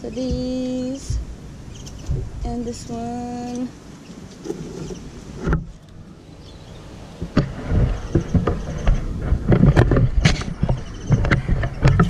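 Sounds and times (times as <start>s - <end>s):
branches and leaves rustling: 0.0s - 12.0s
wind rumble on microphone: 0.0s - 12.0s
clicks and knocks: 7.2s - 12.0s.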